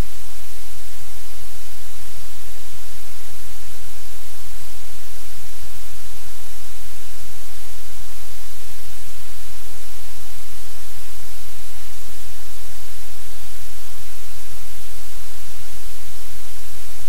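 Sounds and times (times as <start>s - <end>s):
low electrical hum: 0.0s - 17.0s
static hiss: 0.0s - 17.0s.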